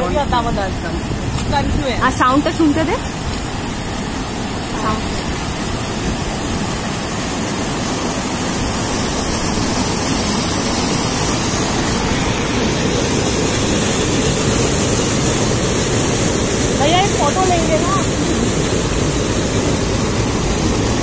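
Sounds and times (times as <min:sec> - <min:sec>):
river rushing over rocks: 0:00.0 - 0:21.0.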